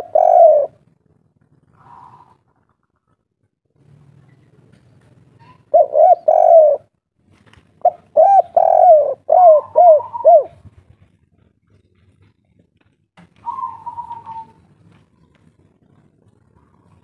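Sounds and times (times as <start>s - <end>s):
dove cooing: 0.0s - 0.8s, 1.6s - 2.8s, 5.4s - 6.9s, 7.8s - 10.7s, 13.2s - 17.0s.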